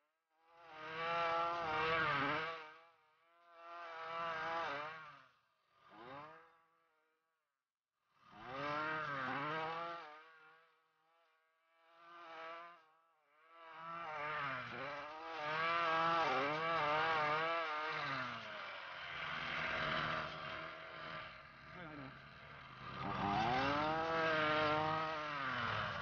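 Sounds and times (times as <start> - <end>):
string trimmer engine revving: 0.7 - 2.7, 8.3 - 10.1, 13.6 - 26.0.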